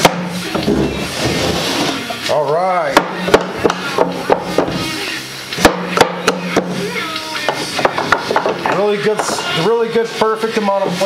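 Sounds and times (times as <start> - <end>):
background music: 0.0 - 11.0
tubes knocking on wood: 2.9 - 4.8, 5.6 - 6.8, 7.4 - 10.4.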